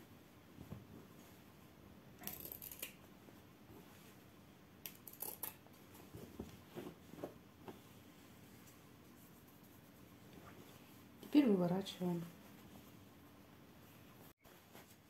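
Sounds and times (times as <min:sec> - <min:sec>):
fabric rustling: 0:13.8 - 0:15.0.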